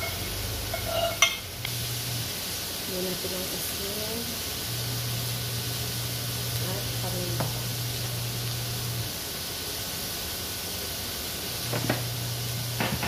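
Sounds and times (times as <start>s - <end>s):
meat sizzling in a wok: 0.0s - 13.0s.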